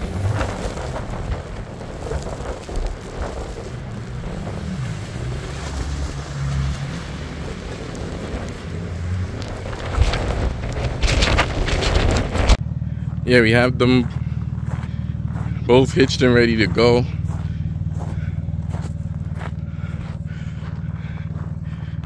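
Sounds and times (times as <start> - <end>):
wind buffeting microphone: 0.0 - 12.6
car engine at low revs: 0.0 - 22.0.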